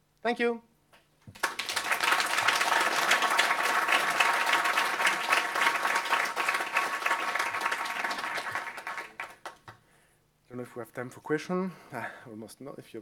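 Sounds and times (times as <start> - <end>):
audience applauding: 1.3 - 9.8.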